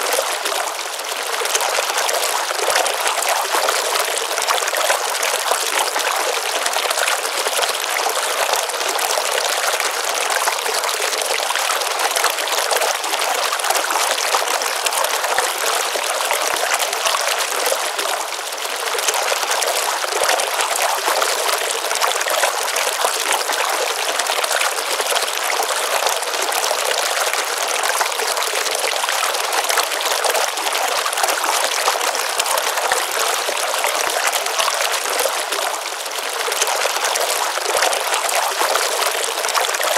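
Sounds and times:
water trickling and splashing: 0.0s - 39.9s.

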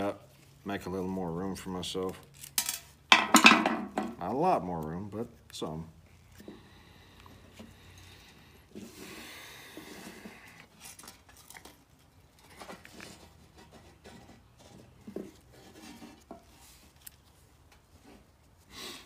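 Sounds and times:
rustle: 4.2s - 19.0s.

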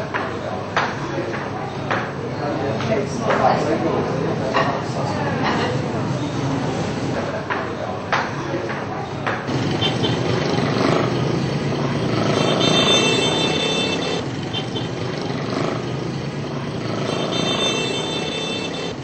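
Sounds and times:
vehicle noise: 0.0s - 19.0s.

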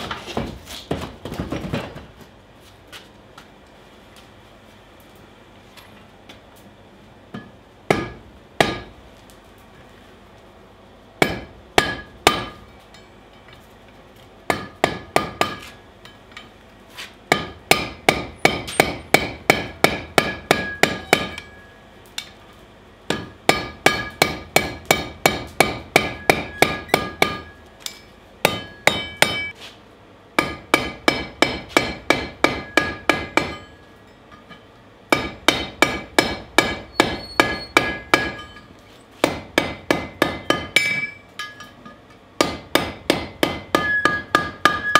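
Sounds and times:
hammer striking hot iron on anvil: 7.3s - 9.0s, 11.2s - 13.6s, 14.5s - 16.6s, 17.3s - 22.4s, 23.1s - 29.6s, 30.4s - 44.9s.

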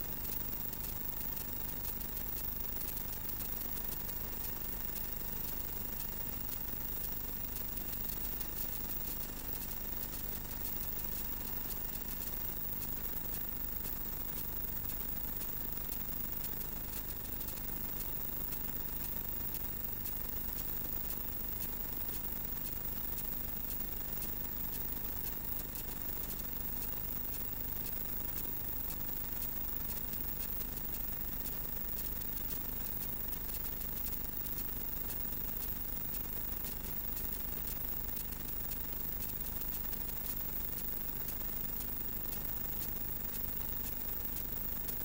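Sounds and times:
crackling ticks: 0.0s - 45.0s.

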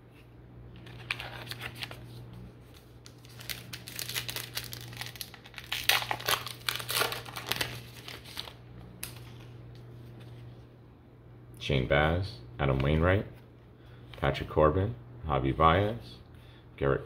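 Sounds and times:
card pack wrapper crinkling and tearing: 0.8s - 2.0s, 2.8s - 9.5s.

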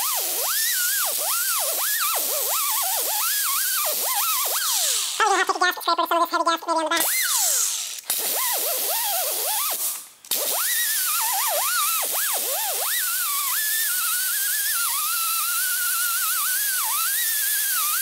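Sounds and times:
air grinder high whine: 0.0s - 5.4s, 7.0s - 18.0s.

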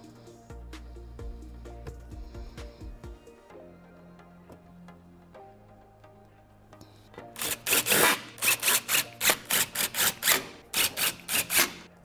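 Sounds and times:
hand ratchet rasping: 7.4s - 11.9s.

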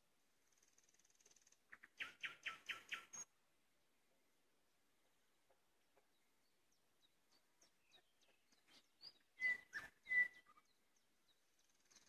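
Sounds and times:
nightingale singing: 0.5s - 3.4s, 6.0s - 12.0s.

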